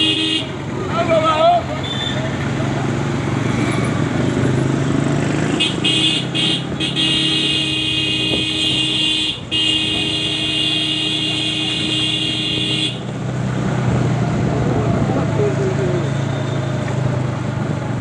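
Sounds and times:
vehicle horn: 0.0 - 0.6, 5.5 - 13.1
engine and traffic rumble: 0.0 - 18.0.

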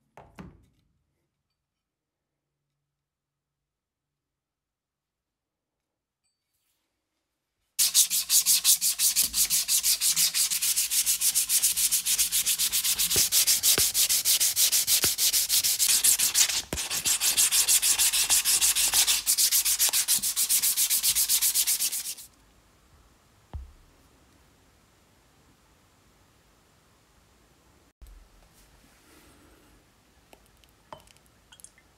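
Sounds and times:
abrasive strip sanding wooden handle: 7.8 - 22.3.

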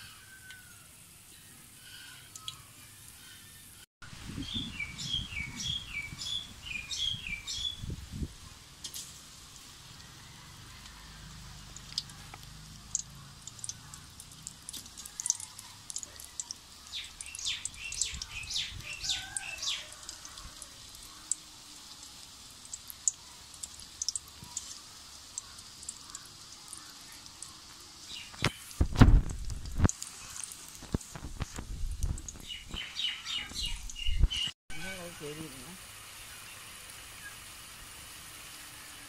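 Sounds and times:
food sizzling in hot oil: 0.0 - 39.0
oil crackling: 8.8 - 34.4.

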